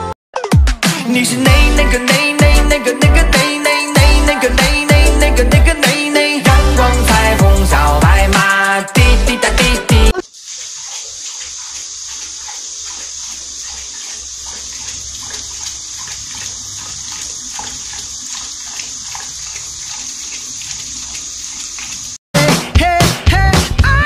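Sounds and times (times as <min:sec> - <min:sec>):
dog lapping water: 0:10.2 - 0:22.2
faucet running into steel sink: 0:10.2 - 0:22.2.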